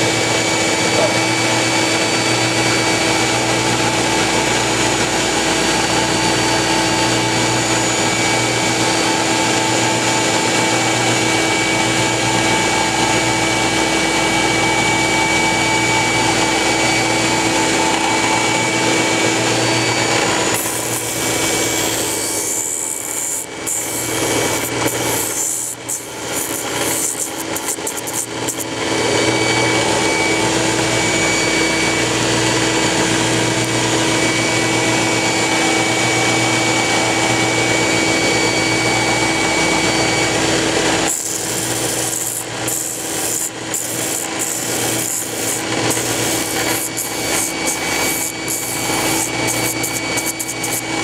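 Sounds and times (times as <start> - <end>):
rasping cutting noise: 0.0 - 34.2, 38.0 - 51.0
machine motor whine: 0.0 - 51.0.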